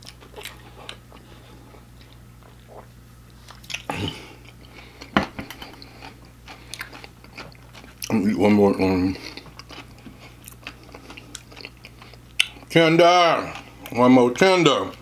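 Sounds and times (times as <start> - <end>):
person drinking and chewing: 0.0 - 8.2, 9.1 - 12.7
steady low hum: 0.0 - 15.0.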